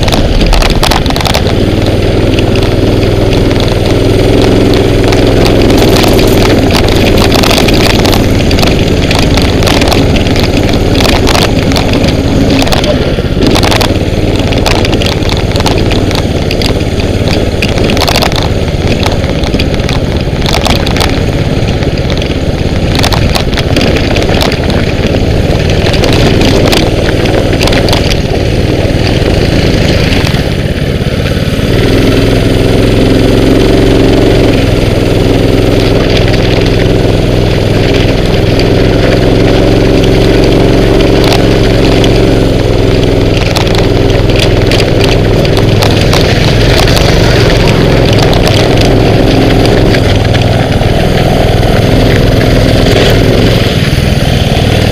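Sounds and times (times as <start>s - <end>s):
small motorbike engine running hard: 0.0s - 54.9s.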